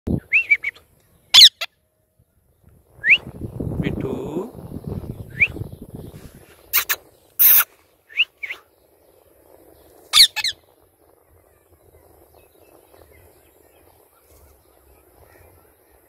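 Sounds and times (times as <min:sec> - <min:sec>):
faint outdoor background: 0:00.1 - 0:16.0
parakeet screeching and chirping: 0:01.3 - 0:01.7, 0:06.7 - 0:07.7, 0:10.1 - 0:10.6.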